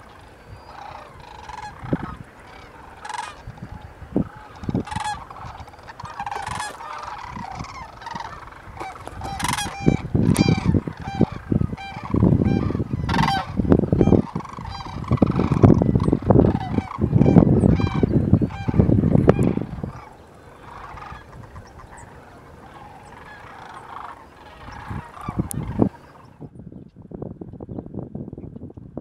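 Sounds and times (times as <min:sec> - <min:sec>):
cranes rattling bugle calls: 0:00.0 - 0:26.4.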